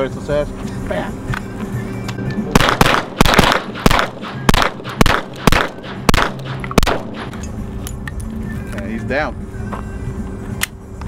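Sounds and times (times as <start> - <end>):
pistol shots: 2.5 - 7.5.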